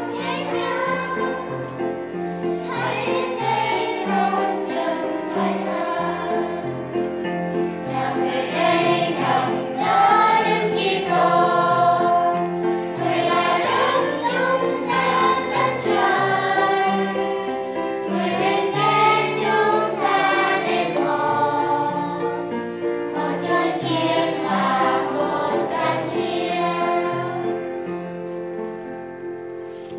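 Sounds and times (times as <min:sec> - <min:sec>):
children's choir singing: 0:00.0 - 0:28.1.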